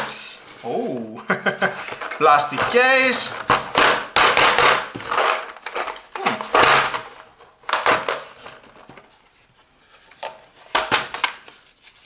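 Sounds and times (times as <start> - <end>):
plastic case scraping and knocking: 1.8 - 9.1.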